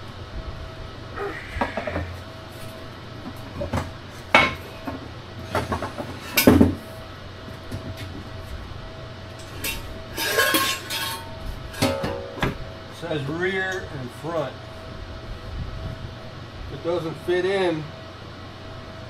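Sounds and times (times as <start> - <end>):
faint steady hum: 0.0 - 19.0
rattling scrape: 9.4 - 12.4.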